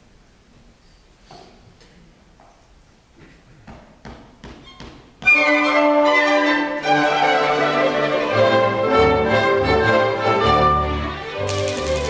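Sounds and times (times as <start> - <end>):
string orchestra playing: 5.2 - 12.0.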